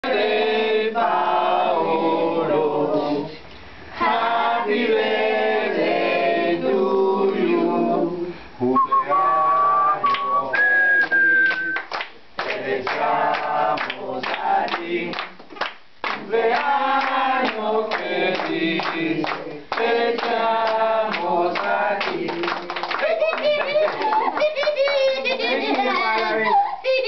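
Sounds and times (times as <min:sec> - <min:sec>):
group singing: 0:00.0 - 0:11.8, 0:12.4 - 0:23.0
people clapping: 0:10.0 - 0:26.6.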